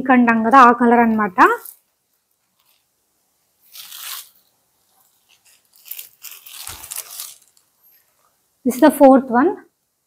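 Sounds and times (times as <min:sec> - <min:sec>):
fabric rustling: 0:01.0 - 0:08.4.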